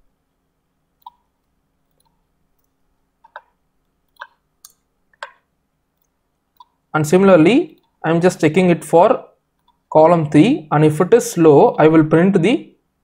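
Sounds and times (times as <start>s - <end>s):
computer mouse and keyboard clicks: 1.0s - 6.8s.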